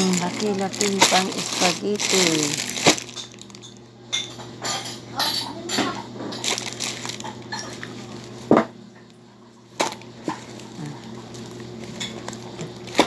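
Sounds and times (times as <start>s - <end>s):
cans and packages knocking: 0.0s - 3.3s
shopping bags rustling: 0.0s - 3.8s, 6.3s - 8.4s.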